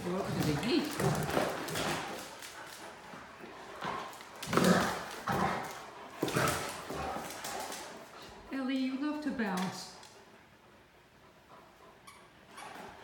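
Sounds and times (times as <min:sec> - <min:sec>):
dog claws clattering on tile: 0:00.1 - 0:08.3.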